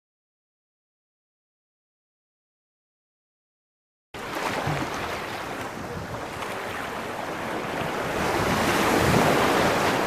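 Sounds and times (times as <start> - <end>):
waves washing onto beach: 4.2 - 10.0
wind rumbling on microphone: 4.5 - 10.0.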